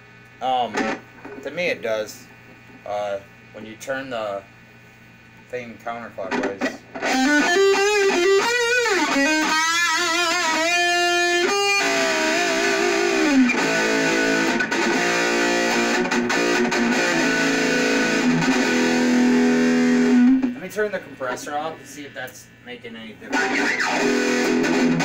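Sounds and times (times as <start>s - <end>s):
distorted electric guitar: 0.7s - 1.4s, 6.3s - 20.7s, 23.3s - 25.0s.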